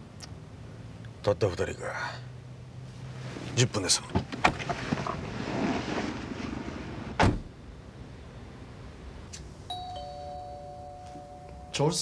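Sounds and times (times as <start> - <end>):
car door shutting: 4.0 - 7.6.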